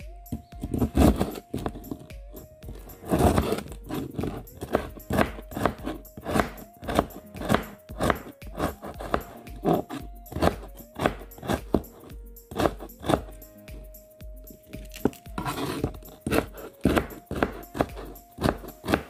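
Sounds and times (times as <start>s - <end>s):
knife cutting broccoli: 3.0s - 13.3s, 14.8s - 19.0s.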